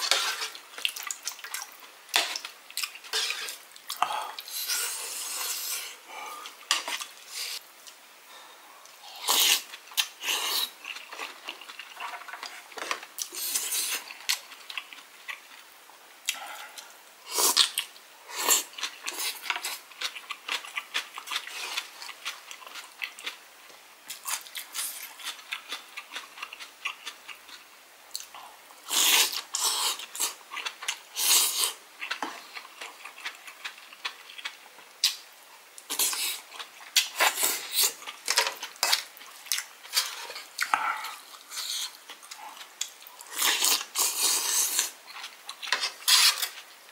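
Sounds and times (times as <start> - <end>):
wooden spoon scraping a bowl: 3.1 - 3.6
chewing: 9.3 - 15.6, 16.2 - 23.4, 29.0 - 46.6.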